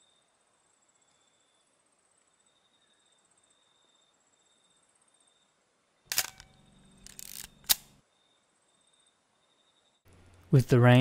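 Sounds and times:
film advance winding rattle: 6.1s - 7.9s
camera shutter click: 6.1s - 8.0s.

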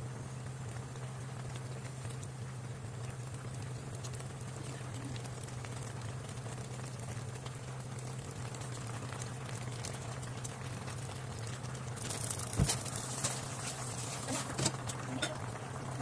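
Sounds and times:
stew boiling and bubbling: 0.0s - 16.0s.

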